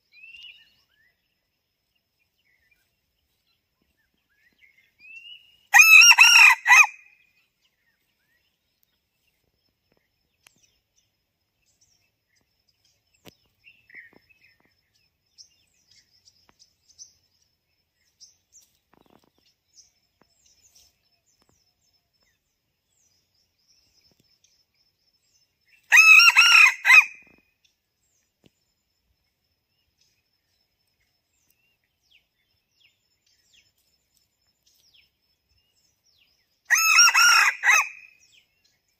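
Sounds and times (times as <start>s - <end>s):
faint small-bird chirps: 0.0s - 5.8s, 7.1s - 26.0s, 27.2s - 36.8s
rooster crowing: 5.7s - 7.0s, 25.9s - 27.2s, 36.7s - 38.1s.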